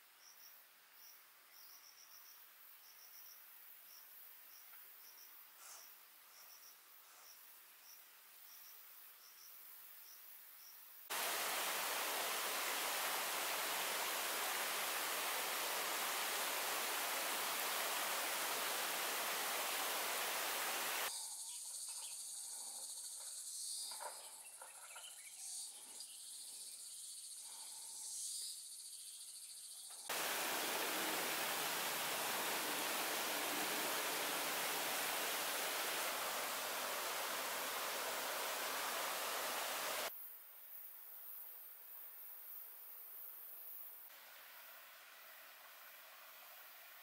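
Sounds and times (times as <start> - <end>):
faint chirps: 0.2 - 40.1
high steady insect buzz: 10.6 - 24.1, 26.0 - 40.1
stream water rushing: 11.1 - 21.1, 30.1 - 40.1.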